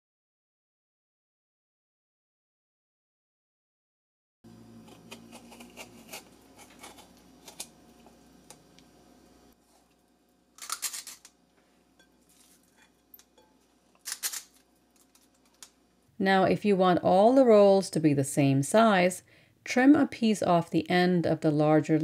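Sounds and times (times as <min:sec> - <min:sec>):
ice cream scoop scraping: 0:04.8 - 0:07.8.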